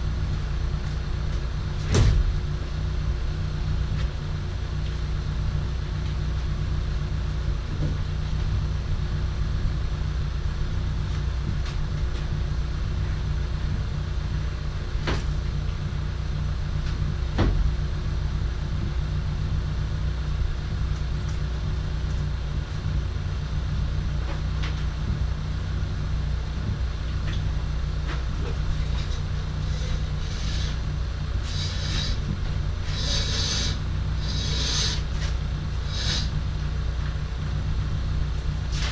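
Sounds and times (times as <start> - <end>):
steady low hum: 0.0 - 38.9
rope rasping through pulley: 28.7 - 36.4.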